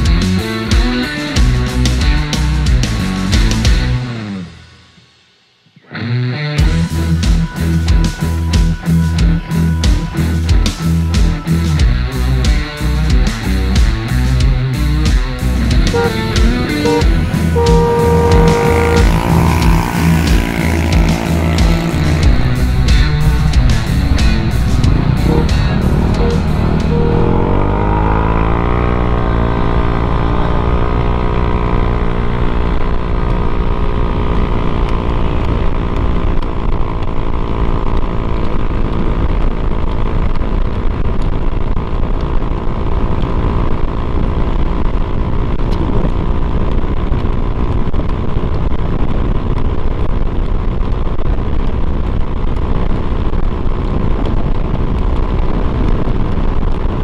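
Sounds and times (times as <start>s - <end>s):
scooter engine accelerating: 15.5s - 48.8s
wind rumble on microphone: 17.8s - 57.0s.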